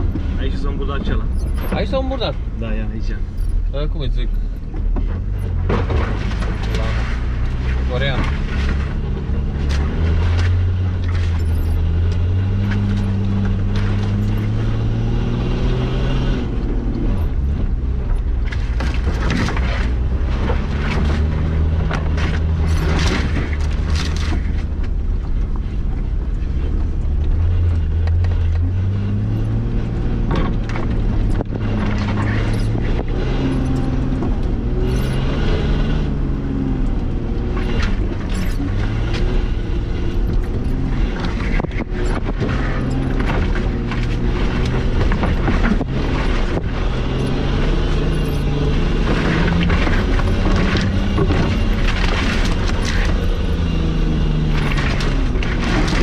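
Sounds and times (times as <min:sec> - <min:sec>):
vehicle knocks and rattles: 0:00.0 - 0:02.6, 0:03.3 - 0:14.6, 0:16.7 - 0:35.3, 0:37.4 - 0:56.0
car engine revving: 0:00.0 - 0:56.0.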